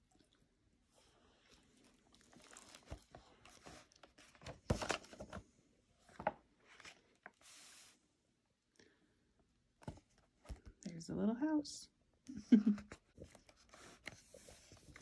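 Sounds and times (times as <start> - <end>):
book pages rustling: 1.5 - 5.4, 6.0 - 7.9, 13.2 - 15.0.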